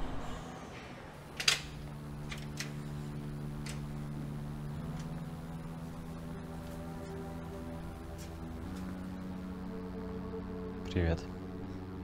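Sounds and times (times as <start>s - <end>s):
low music drone: 0.0s - 12.0s
door lock clicks: 1.3s - 2.8s.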